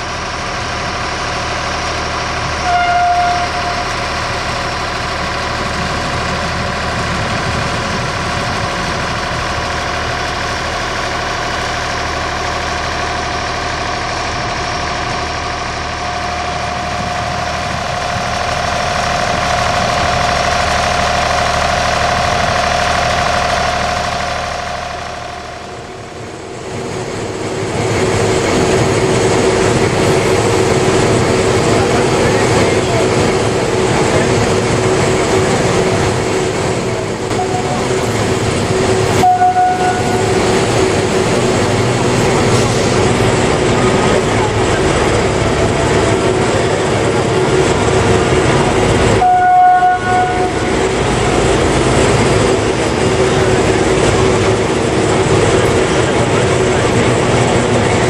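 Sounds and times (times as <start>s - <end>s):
locomotive engine idling: 0.0s - 58.0s
brief high tone: 39.2s - 40.2s, 49.2s - 50.5s.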